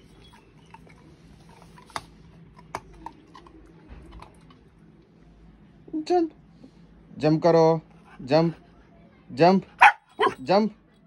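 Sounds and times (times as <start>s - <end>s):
puppy crunching a treat: 0.2s - 4.9s.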